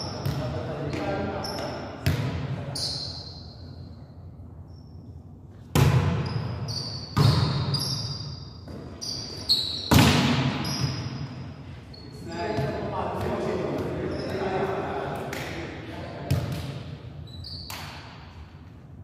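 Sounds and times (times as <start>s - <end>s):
sneakers squeaking on court floor: 0.0s - 4.0s, 4.7s - 14.8s, 16.3s - 18.2s
hands slapping volleyball: 15.2s - 15.6s, 17.7s - 18.0s.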